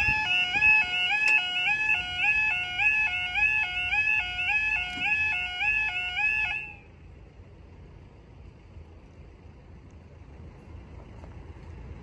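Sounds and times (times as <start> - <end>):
level crossing two-tone alarm: 0.0 - 6.8.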